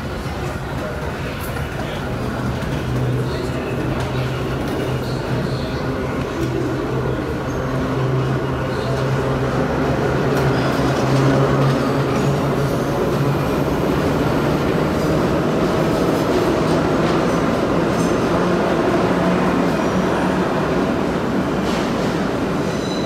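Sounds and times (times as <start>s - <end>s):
subway train wheels rumbling: 0.0s - 23.0s
high wheel squeals: 22.6s - 23.0s.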